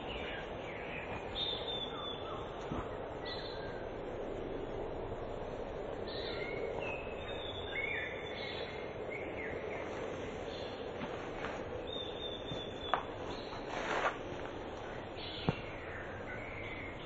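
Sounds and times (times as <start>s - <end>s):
birds chirping: 0.0s - 17.0s
outdoor background noise: 0.0s - 17.0s.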